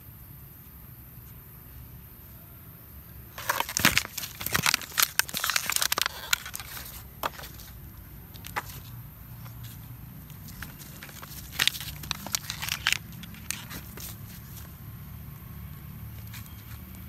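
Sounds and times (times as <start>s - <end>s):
plastic bottle crinkling: 3.3s - 14.7s.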